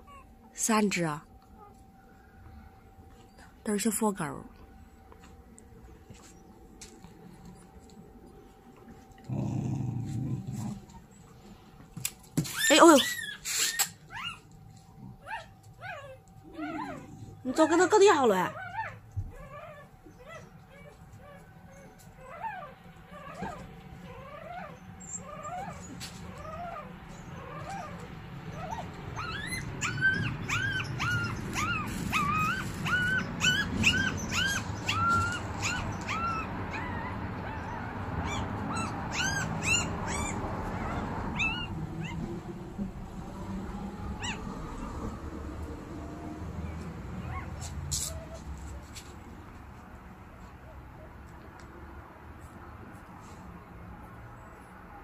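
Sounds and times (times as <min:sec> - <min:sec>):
puppies squealing and whimpering: 0:12.4 - 0:14.5, 0:15.2 - 0:42.3, 0:44.2 - 0:45.1, 0:46.6 - 0:48.6.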